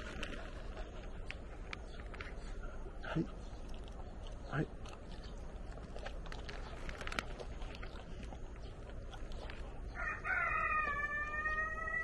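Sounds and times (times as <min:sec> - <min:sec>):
dogs chewing treats: 0:00.0 - 0:12.0
rooster crowing: 0:10.0 - 0:12.0.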